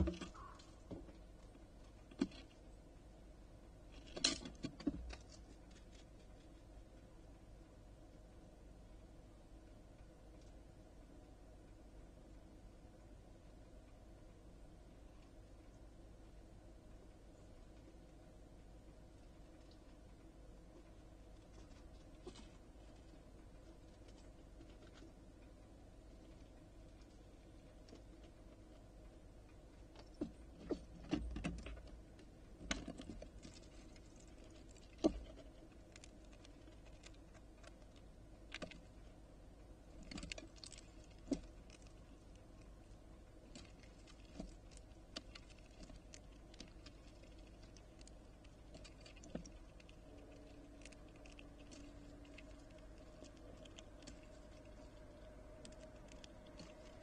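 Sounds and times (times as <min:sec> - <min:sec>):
claws tapping and scrabbling on wood: 0:00.0 - 0:02.8, 0:03.9 - 0:06.7, 0:19.4 - 0:39.2, 0:39.9 - 0:57.0.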